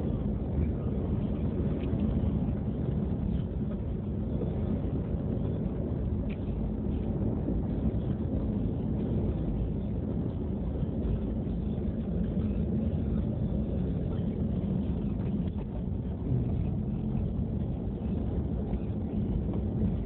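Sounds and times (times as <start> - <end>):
car engine and tyre rumble: 0.0 - 20.0.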